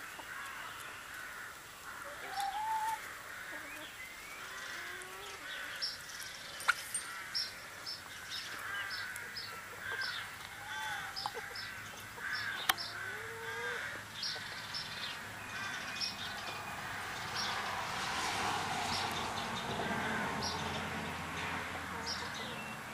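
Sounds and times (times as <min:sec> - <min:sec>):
hens calling: 0:00.0 - 0:05.9, 0:06.6 - 0:17.8.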